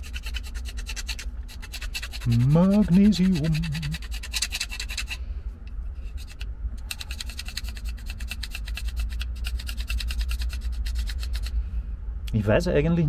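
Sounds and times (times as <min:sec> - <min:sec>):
knife scraping metal rod: 0:00.0 - 0:05.2, 0:06.0 - 0:11.5.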